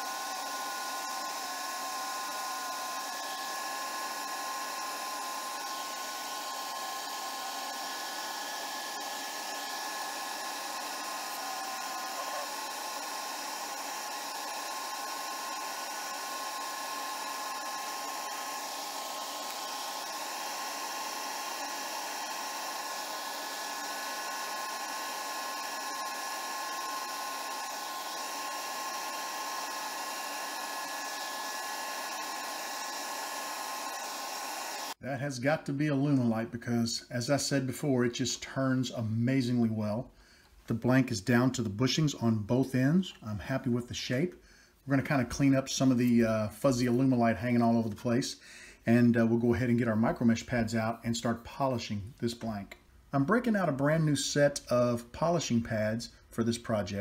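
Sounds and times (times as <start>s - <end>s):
lathe cutting with a whine: 0.0s - 35.0s.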